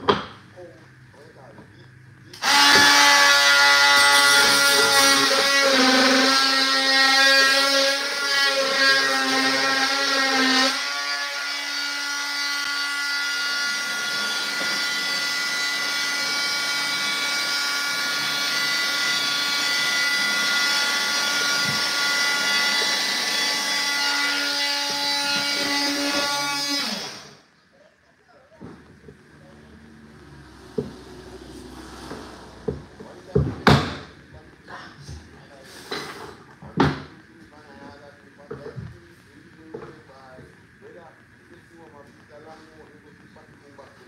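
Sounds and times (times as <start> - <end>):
power tool cutting wood: 2.3 - 27.5, 29.4 - 34.4.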